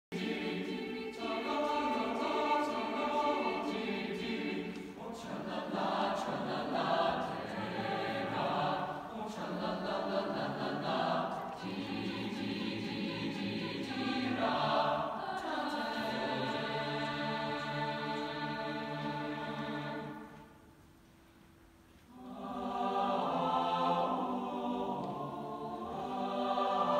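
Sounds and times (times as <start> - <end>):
mixed choir singing: 0.1 - 20.6, 22.1 - 26.9.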